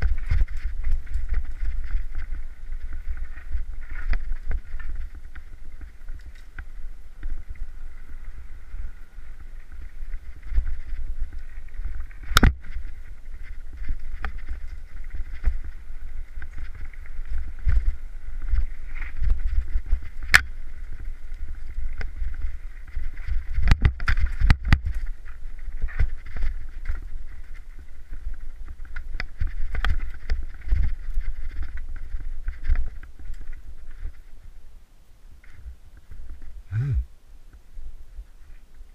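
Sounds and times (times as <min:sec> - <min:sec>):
wind rumbling on microphone: 0:00.0 - 0:38.9.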